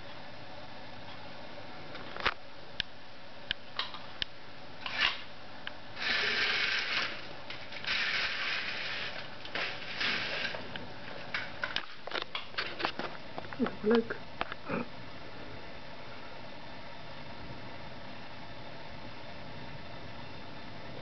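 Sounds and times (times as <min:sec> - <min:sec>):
rain hiss: 0:06.0 - 0:10.6
blind slats rustling and clacking: 0:06.0 - 0:13.1.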